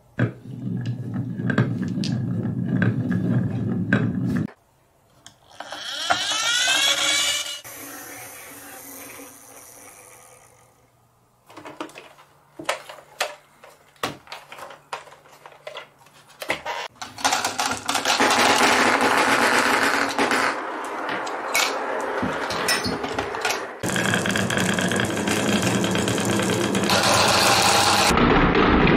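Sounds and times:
toy whirring rising in pitch: 5.5s - 10.8s
clicks and knocks of toys: 16.9s - 22.5s
loud rattling whir: 23.8s - 28.9s.

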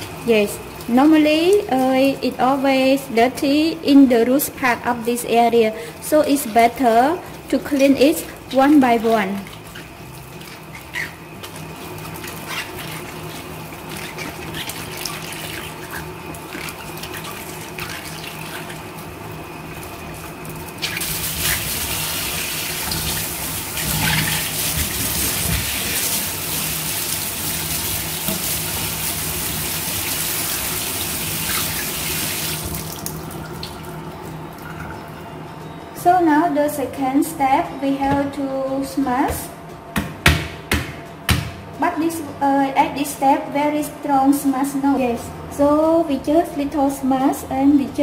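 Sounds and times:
tap water running into sink: 20.0s - 33.8s.

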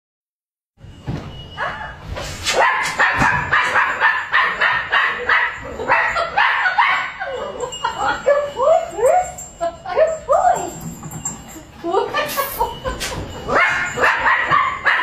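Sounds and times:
puppy yapping: 13.5s - 15.0s.

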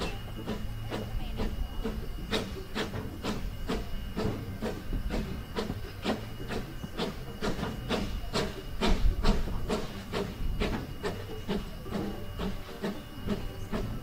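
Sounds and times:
low rumble of running train: 0.0s - 14.0s
steam locomotive chuffing: 0.0s - 14.0s.

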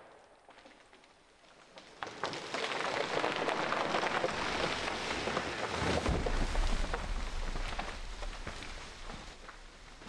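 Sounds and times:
rain falling through trees: 0.0s - 10.0s
low rumble: 6.0s - 10.0s.

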